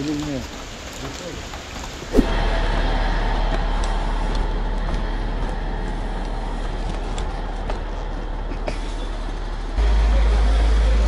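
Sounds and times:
heavy vehicle engine running: 2.2s - 11.0s.

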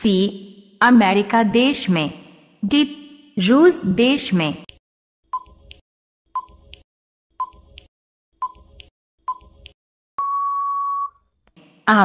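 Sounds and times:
long steady beep: 10.2s - 11.2s.

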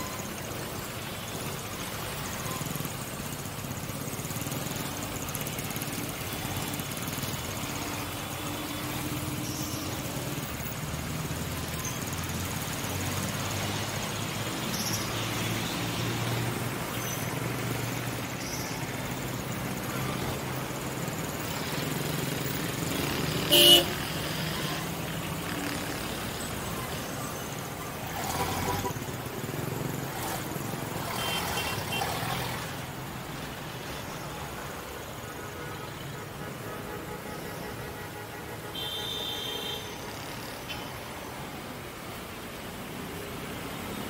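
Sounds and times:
traffic rumble: 0.0s - 44.0s
car horn toot: 23.5s - 23.9s, 31.0s - 32.1s, 38.6s - 40.0s.

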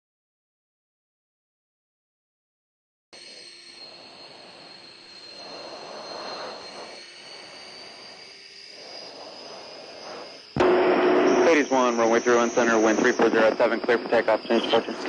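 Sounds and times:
high jet engine whine: 3.2s - 15.0s
jet engine rushing noise: 3.9s - 15.0s.

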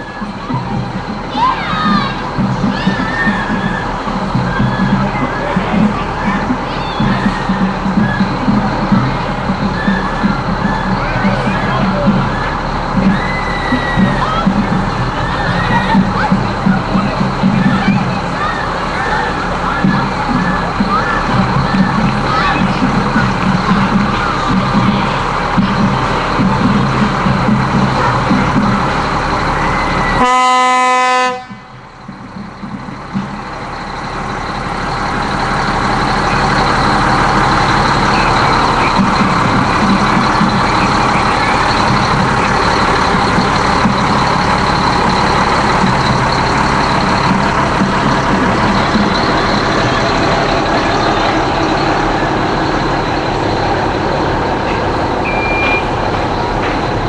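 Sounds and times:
engine and street rumble: 0.0s - 57.0s
fire engine horn blast: 29.4s - 31.8s, 55.2s - 56.4s
short high-pitched beep: 55.2s - 56.0s.

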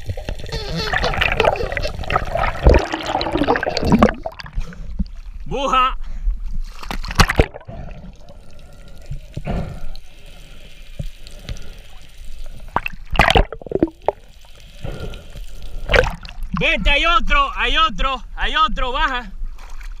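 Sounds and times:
seawater splashing: 0.0s - 5.3s
muffled underwater water noise: 0.0s - 5.5s, 6.4s - 16.8s.

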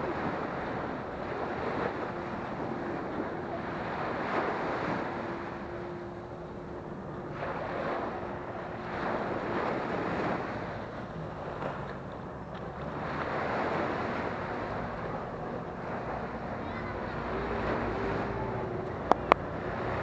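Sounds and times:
small waves breaking on beach: 0.0s - 20.0s
wind buffeting microphone: 0.0s - 20.0s.

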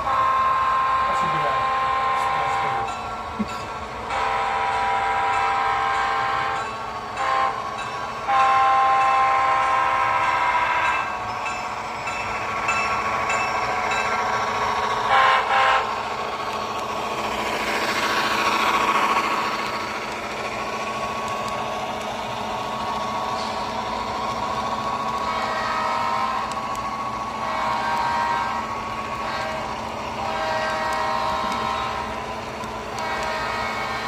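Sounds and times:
locomotive horn: 0.0s - 2.9s, 4.1s - 6.6s, 7.2s - 7.6s, 8.3s - 11.1s, 15.1s - 16.0s, 25.2s - 26.5s, 27.4s - 32.2s, 32.9s - 34.0s
locomotive running rumble: 0.0s - 34.0s.

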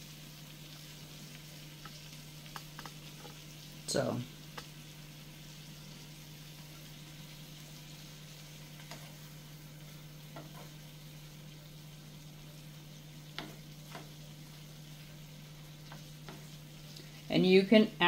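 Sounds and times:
shrimp sizzling in butter: 0.0s - 18.0s
wooden spoon clicking on pan: 1.8s - 3.0s, 4.5s - 4.7s.

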